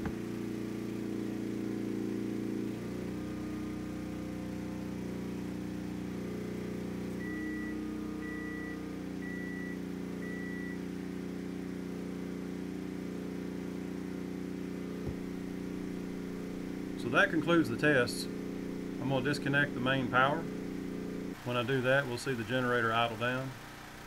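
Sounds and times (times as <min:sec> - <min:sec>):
generator engine running: 0:00.0 - 0:24.0
microwave oven beeps: 0:07.1 - 0:10.9.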